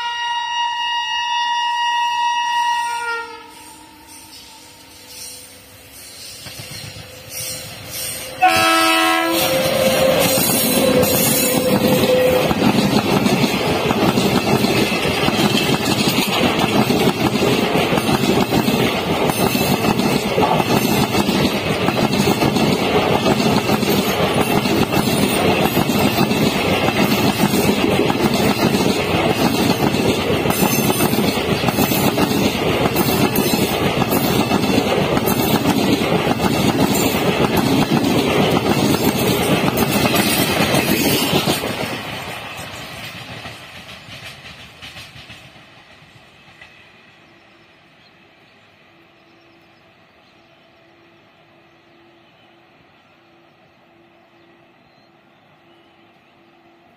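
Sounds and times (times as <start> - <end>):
train passing at high speed: 0.0 - 56.9
wheels clattering over rail joints: 9.7 - 45.6.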